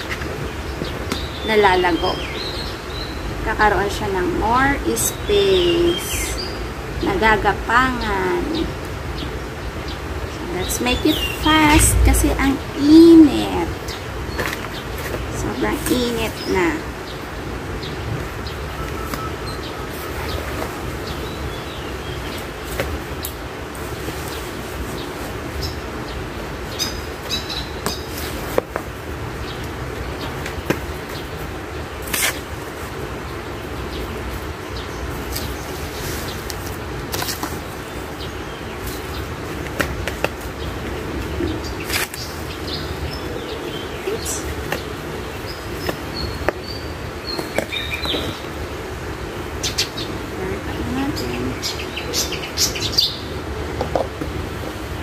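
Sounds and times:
soil and leaves rustling: 0:00.0 - 0:55.0
low outdoor rumble: 0:10.2 - 0:14.3.

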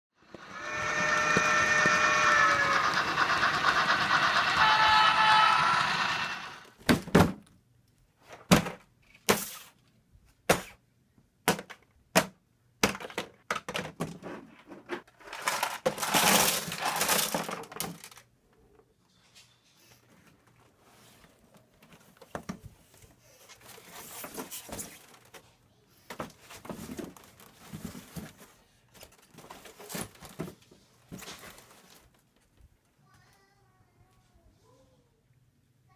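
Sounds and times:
loud held multi-pitch tone: 0:00.5 - 0:06.7.

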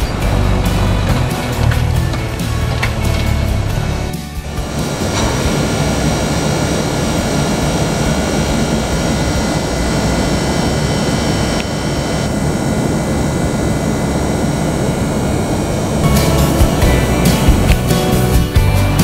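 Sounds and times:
mechanical whirring: 0:00.0 - 0:18.4.

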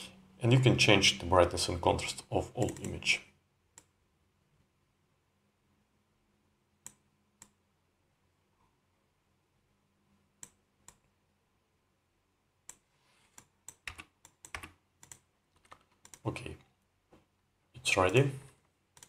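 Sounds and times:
computer mouse clicking: 0:02.6 - 0:03.0, 0:10.4 - 0:11.1, 0:12.7 - 0:16.2.

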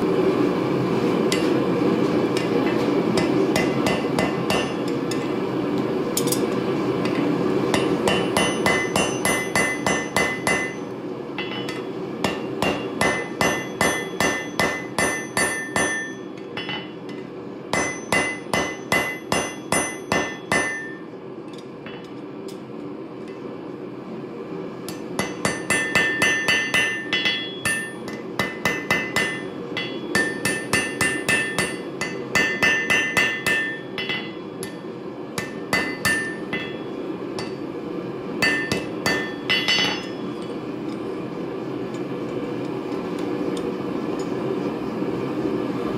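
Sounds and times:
hammer ringing on anvil: 0:02.4 - 0:04.9, 0:07.0 - 0:21.1, 0:24.9 - 0:37.6, 0:38.4 - 0:40.6.

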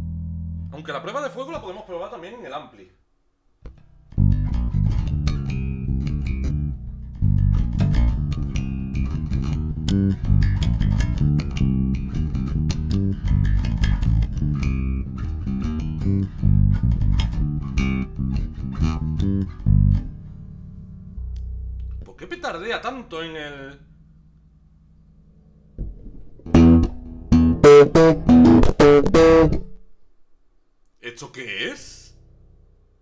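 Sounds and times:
electric bass plucked notes: 0:00.0 - 0:00.7, 0:03.7 - 0:30.4
string pops and clicks: 0:03.6 - 0:20.1, 0:21.2 - 0:22.2, 0:25.8 - 0:30.2.

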